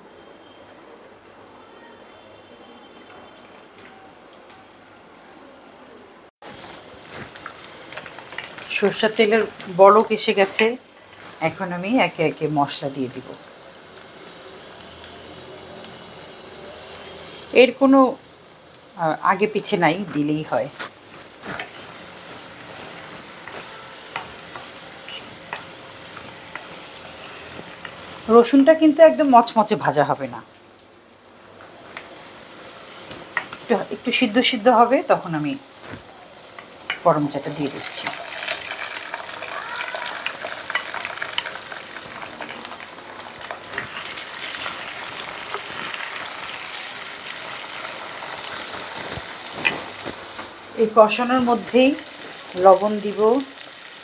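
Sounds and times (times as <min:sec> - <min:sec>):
spices sizzling in hot oil: 0:06.4 - 0:54.0
wooden spatula stirring: 0:20.0 - 0:28.3.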